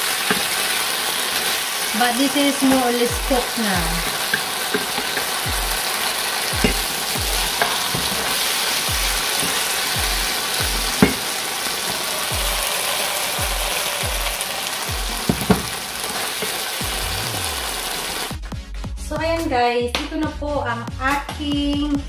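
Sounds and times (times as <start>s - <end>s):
sauce sizzling in a frying pan: 0.0s - 18.4s
wooden spoon knocking on pan: 0.2s - 0.6s, 2.6s - 12.8s, 13.4s - 16.7s.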